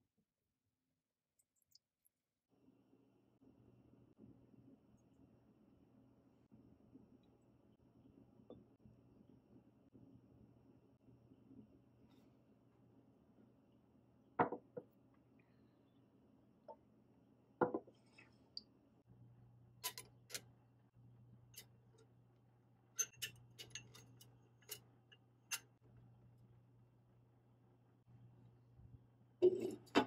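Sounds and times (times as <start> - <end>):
faint low hum: 2.6 - 30.0
glass jars clinking on steel: 23.0 - 24.8.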